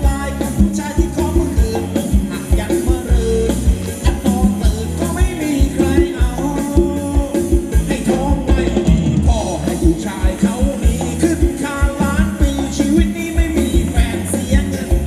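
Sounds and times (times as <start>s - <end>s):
live band playing dance music: 0.0s - 15.0s
steady drum beat: 0.0s - 15.0s.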